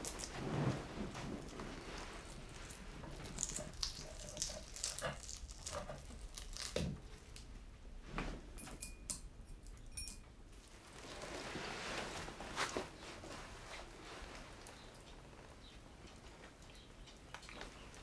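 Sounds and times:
wrapper crinkling and tearing: 1.4s - 7.1s
glass clinking: 8.6s - 10.3s.

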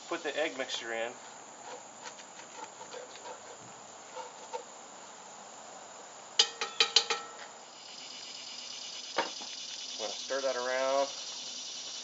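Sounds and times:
wooden spoon scraping in pot: 2.5s - 4.7s
sharp ringing knocks: 6.4s - 7.4s.

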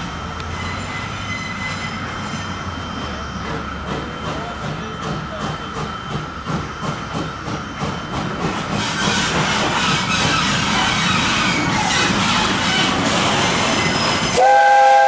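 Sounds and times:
steam locomotive exhaust chuff: 0.4s - 15.0s
steam hiss: 3.4s - 15.0s.

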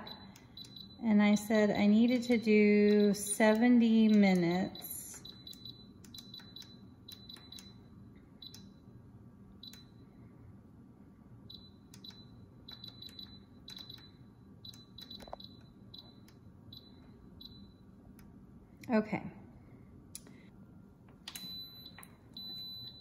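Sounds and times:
appliance dial beeping: 0.0s - 8.8s, 9.6s - 10.0s, 11.5s - 17.9s, 21.2s - 23.0s.

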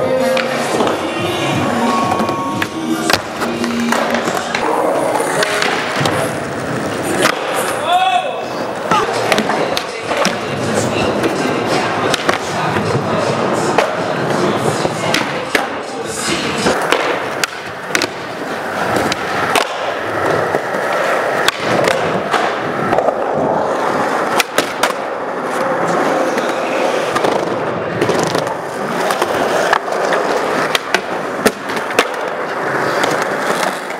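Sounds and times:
skateboard wheels rolling: 0.0s - 33.9s
skateboard popping and landing: 2.1s - 7.8s, 8.8s - 15.8s, 16.6s - 33.9s
skateboard grinding a ledge: 8.4s - 33.9s.

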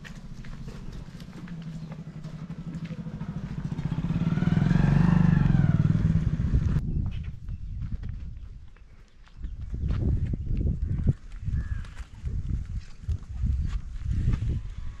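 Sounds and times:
motorcycle engine running: 0.0s - 6.8s.

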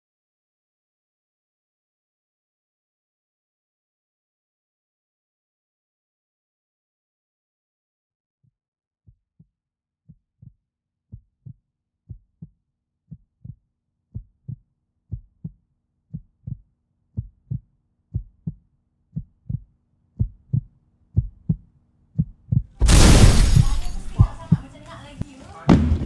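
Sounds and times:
heartbeat thumps: 13.4s - 16.6s, 17.2s - 21.6s, 22.2s - 24.8s.

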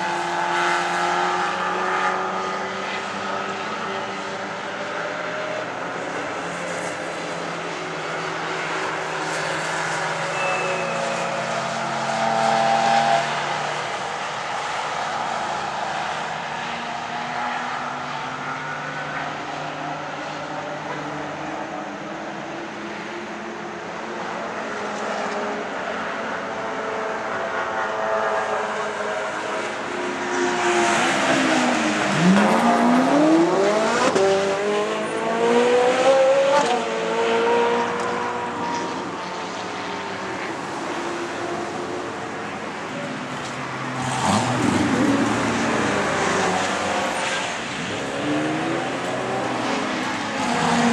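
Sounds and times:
race car engines: 0.0s - 50.9s
car engine revving through gears: 30.6s - 38.9s, 43.9s - 50.9s.

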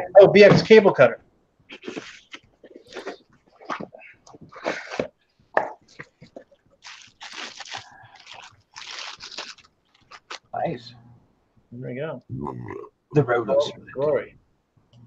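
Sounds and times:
plastic crinkling: 5.9s - 10.5s.

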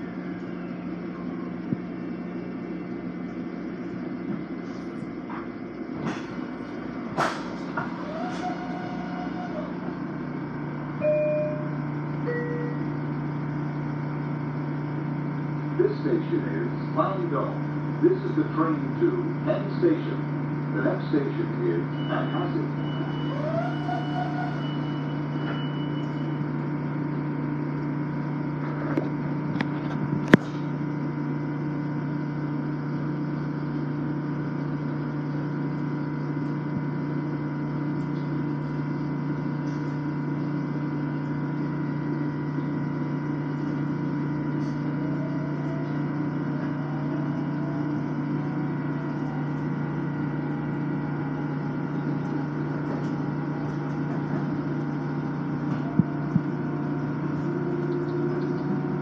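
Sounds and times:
train interior hum and rumble: 0.0s - 59.0s
whining tones: 6.0s - 15.0s, 21.8s - 30.8s, 34.6s - 59.0s.

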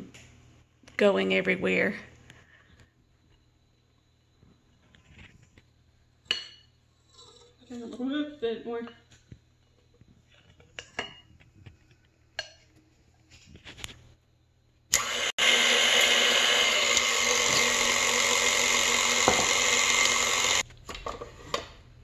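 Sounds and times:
stand mixer motor hum: 15.0s - 20.6s.

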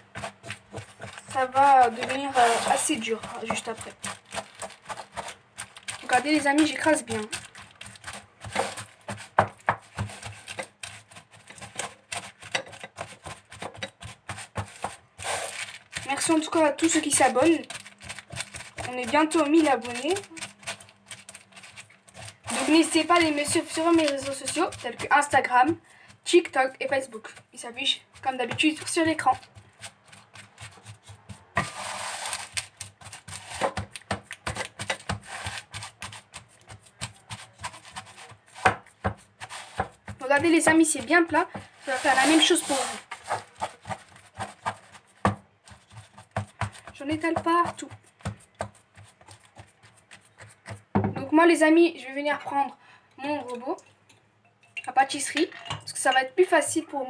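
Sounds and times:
spatula tapping and scraping in pan: 0.0s - 15.2s, 32.5s - 51.3s
spatula scraping in metal pan: 0.0s - 25.8s, 31.6s - 33.7s, 40.6s - 45.1s.

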